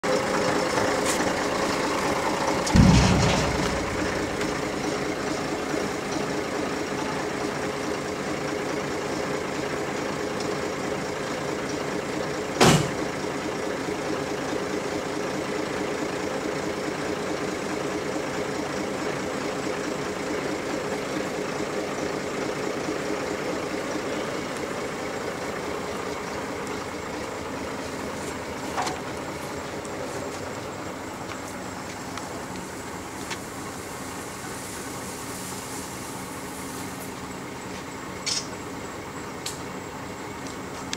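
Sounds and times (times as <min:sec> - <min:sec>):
truck engine idling: 0:00.0 - 0:40.9
sharp knock: 0:02.7 - 0:04.8
loud low thump: 0:02.7 - 0:05.2.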